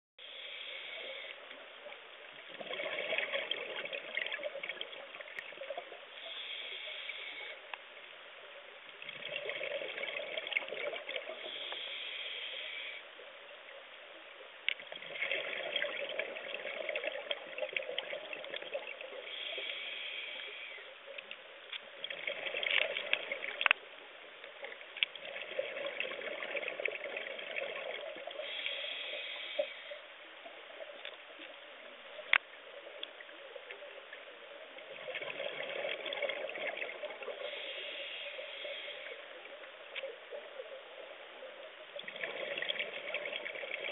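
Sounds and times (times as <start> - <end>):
hissing inhale through regulator: 0.2 - 1.4, 6.2 - 7.7, 11.3 - 13.1, 19.2 - 20.9, 28.3 - 30.1, 37.3 - 39.4
bubbling exhale underwater: 2.6 - 5.0, 15.0 - 19.1, 42.0 - 43.9.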